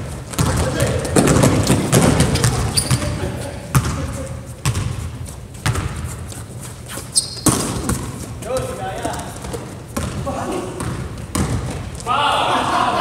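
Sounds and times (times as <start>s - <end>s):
basketball bouncing on wooden floor: 0.3s - 6.1s, 7.3s - 12.0s
sneaker squeak: 1.6s - 10.2s.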